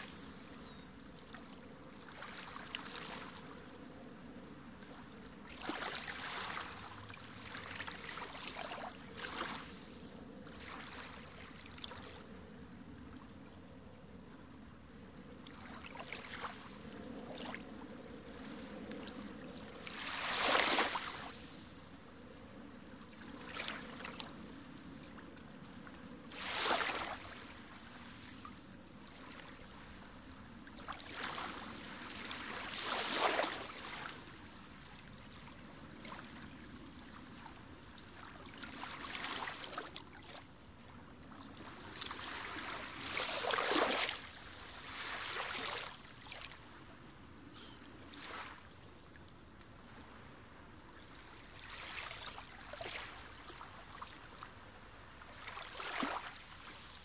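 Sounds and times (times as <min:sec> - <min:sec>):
sea water sloshing and splashing: 0:02.0 - 0:03.4, 0:05.5 - 0:09.8, 0:10.5 - 0:12.2, 0:15.5 - 0:17.6, 0:19.8 - 0:21.5, 0:23.3 - 0:24.4, 0:26.3 - 0:28.3, 0:30.7 - 0:34.3, 0:38.1 - 0:40.5, 0:41.4 - 0:46.6, 0:51.2 - 0:54.5, 0:55.2 - 0:57.0.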